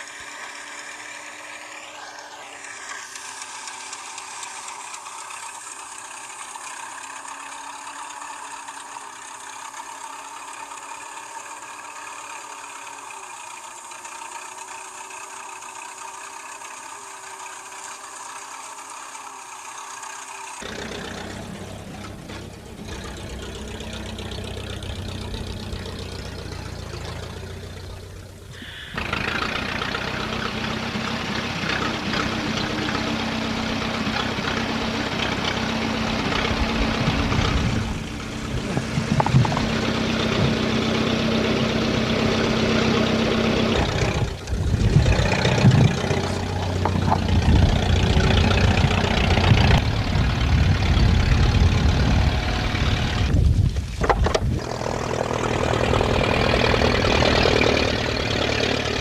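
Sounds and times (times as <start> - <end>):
tractor engine running: 0.0 - 59.0
steady hiss: 28.2 - 29.4.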